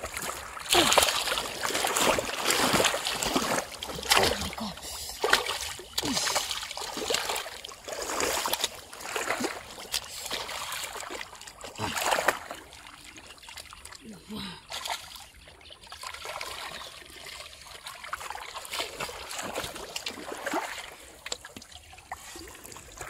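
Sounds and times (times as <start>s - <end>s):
hands splashing muddy water: 0.0s - 23.0s
fish thrashing at water surface: 0.1s - 12.6s.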